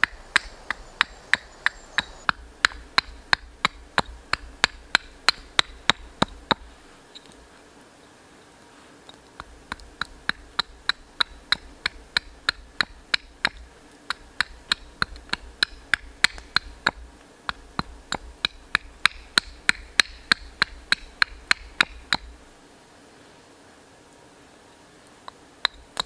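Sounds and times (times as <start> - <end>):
hatchet knocking on wooden stump: 9.4 - 22.3, 25.6 - 26.0.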